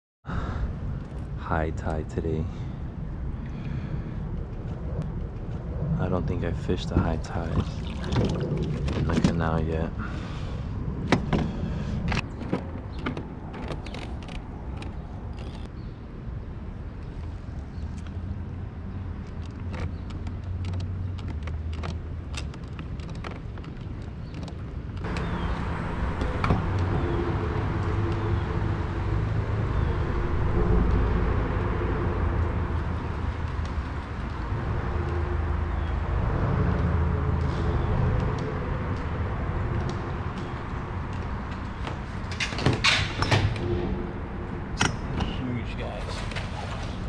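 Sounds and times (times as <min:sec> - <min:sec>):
traffic rumbling on bridge overhead: 0:00.3 - 0:47.0.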